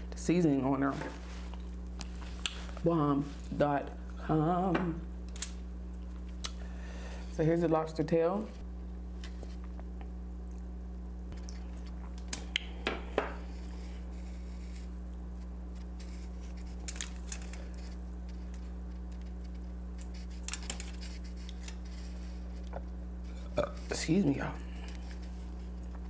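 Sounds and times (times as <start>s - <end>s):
low electrical hum: 0.0s - 26.0s
lobster shell crackling: 15.8s - 25.9s.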